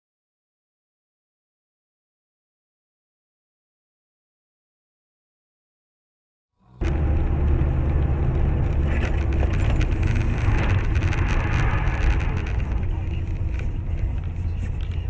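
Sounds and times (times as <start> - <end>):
engine and tyre rumble: 6.8 - 15.0
wind noise: 6.8 - 15.0.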